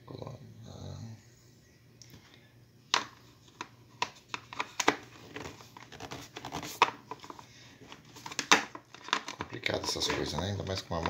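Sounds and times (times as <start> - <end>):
plastic clicks knocks and scrapes: 2.9 - 11.0.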